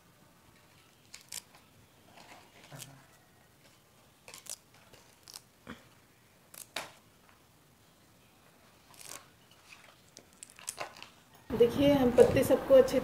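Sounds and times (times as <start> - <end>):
leaves being stripped: 0.5 - 7.1, 8.6 - 11.4.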